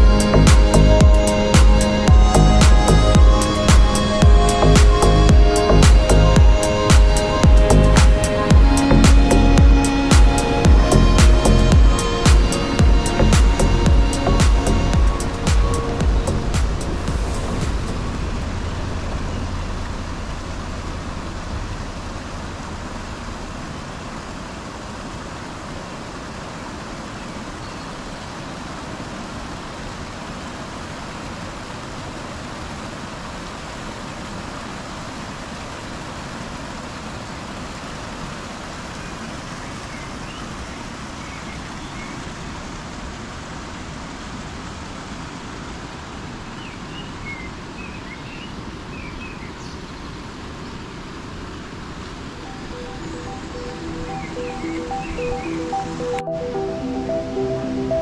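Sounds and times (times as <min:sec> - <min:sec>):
road vehicles rushing: 0:15.8 - 0:25.5.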